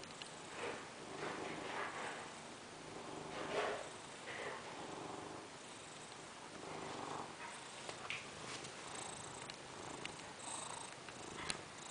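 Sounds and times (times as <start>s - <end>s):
cat purring: 0.0s - 11.9s
faint clicks: 9.4s - 10.3s.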